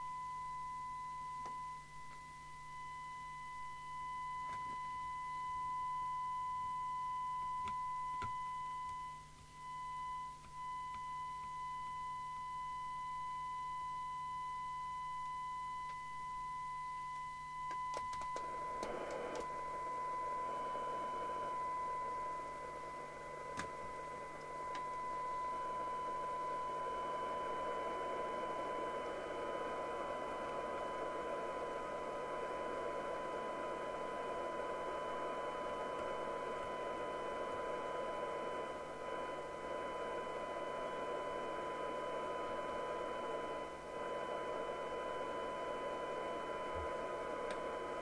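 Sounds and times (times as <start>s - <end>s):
steady radio test tone: 0.0s - 48.0s
clicks: 17.1s - 19.5s, 23.5s - 25.1s, 46.7s - 47.7s.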